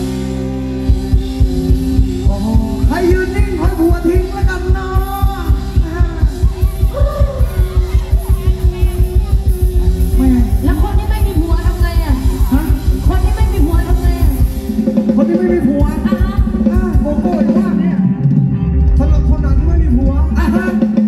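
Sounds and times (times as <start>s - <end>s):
fast drum beat: 0.9s - 21.0s
person singing: 1.4s - 10.7s.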